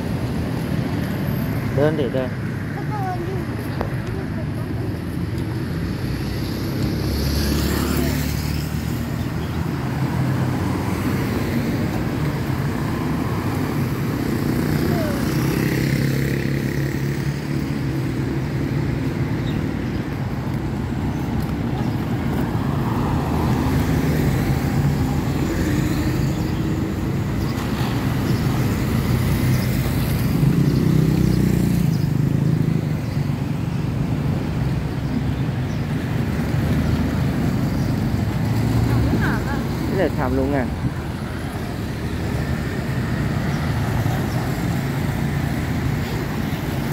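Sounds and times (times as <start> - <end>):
cars and motorcycles passing: 0.0 - 46.9
low traffic rumble: 0.0 - 46.9.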